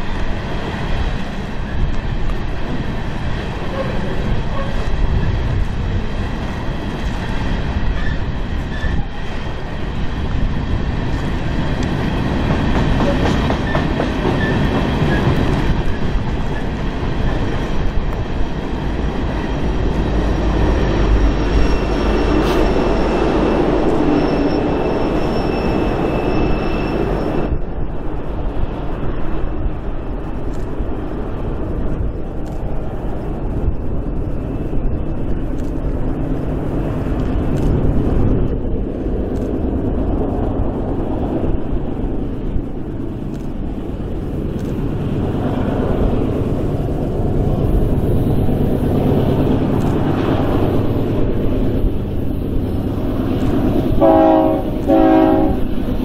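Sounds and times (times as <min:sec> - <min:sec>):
train wheels rumbling and clattering: 0:00.0 - 0:56.0
high wheel squeal: 0:08.0 - 0:09.2, 0:20.8 - 0:27.6.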